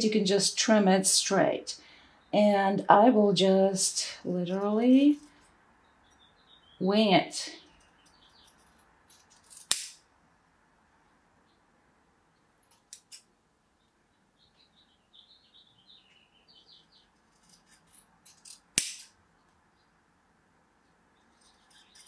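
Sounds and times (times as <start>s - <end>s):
shears snipping cord: 9.4s - 10.0s, 17.5s - 19.1s
sharp click: 18.8s - 19.1s.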